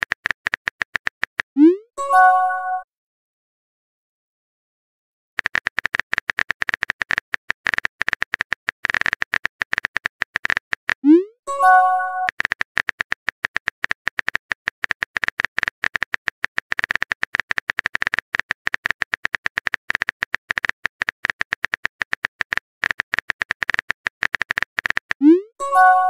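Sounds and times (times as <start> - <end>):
keyboard typing clicks: 5.4 - 26.0.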